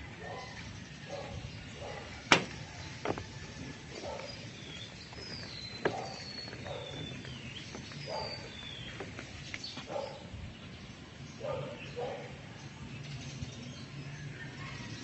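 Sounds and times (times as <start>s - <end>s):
birds chirping: 0.0s - 15.0s
footsteps on metal grating: 1.8s - 10.0s
sharp knocks: 2.3s - 3.3s.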